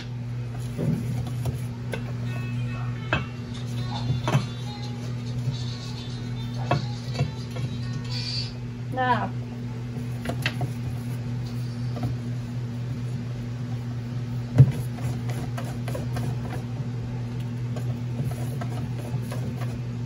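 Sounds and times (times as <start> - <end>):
steady low hum: 0.0 - 20.0
utensil stirring batter in bowl: 10.0 - 16.8, 17.4 - 19.9.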